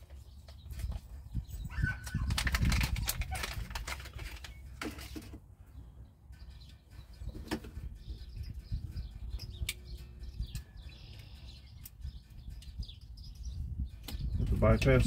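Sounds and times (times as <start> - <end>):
plastic packaging rustling: 1.8 - 5.4
sharp plastic clicks: 2.1 - 5.3.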